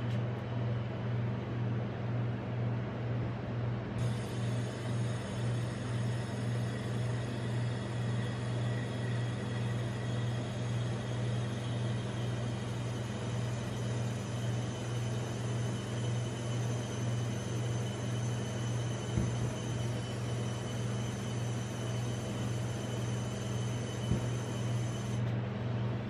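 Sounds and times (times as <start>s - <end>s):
refrigeration unit humming: 0.0s - 26.0s.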